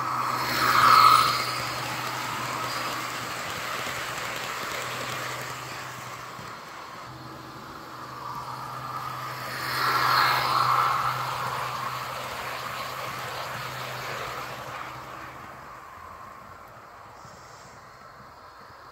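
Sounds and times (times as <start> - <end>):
model train humming past: 0.0 - 18.9.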